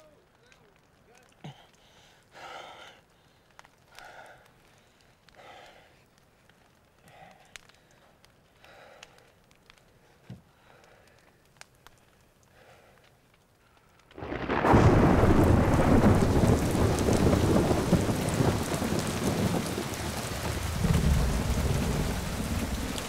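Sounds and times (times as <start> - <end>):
heavy rain pouring: 14.1 - 23.0.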